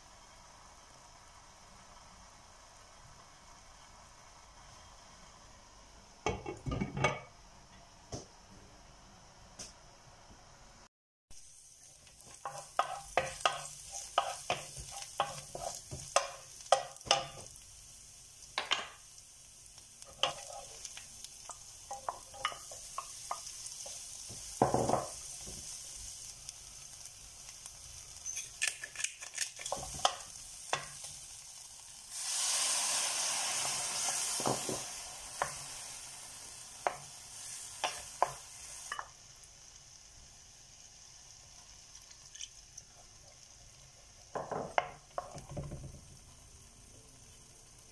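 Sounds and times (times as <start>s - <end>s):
food sizzling in frying pan: 0.0s - 8.4s, 11.3s - 47.9s
wooden spoon knocking pan: 24.6s - 25.2s, 44.3s - 46.0s
loud hiss: 31.9s - 40.8s.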